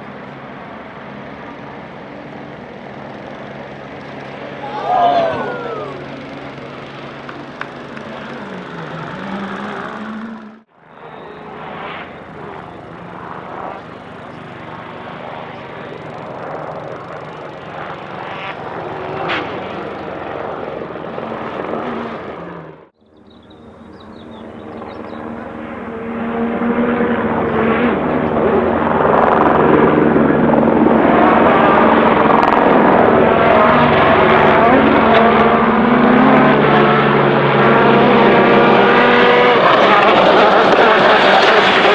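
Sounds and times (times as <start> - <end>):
helicopter rotor: 0.0 - 41.9
rally car engine: 1.4 - 28.8, 29.5 - 41.9.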